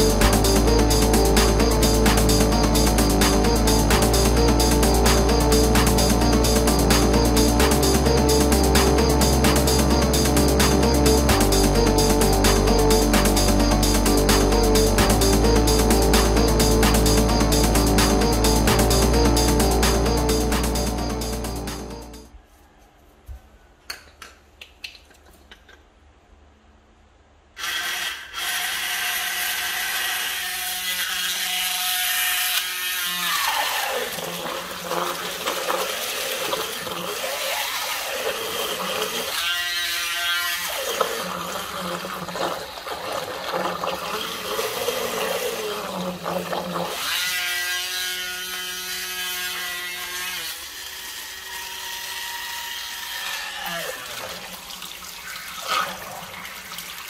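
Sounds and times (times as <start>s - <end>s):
small electric motor whining: 27.6s - 42.3s, 44.1s - 54.2s
propeller churning water: 34.0s - 39.3s, 40.9s - 46.9s.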